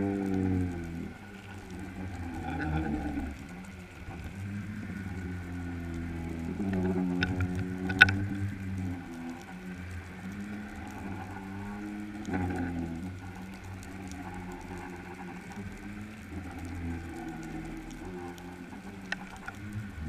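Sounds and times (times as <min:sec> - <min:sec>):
underwater boat motor hum: 0:00.0 - 0:20.0.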